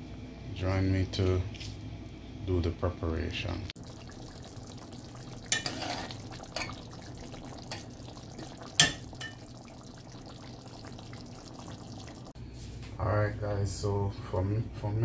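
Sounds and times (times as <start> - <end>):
gravy bubbling in a pot: 3.6 - 12.4.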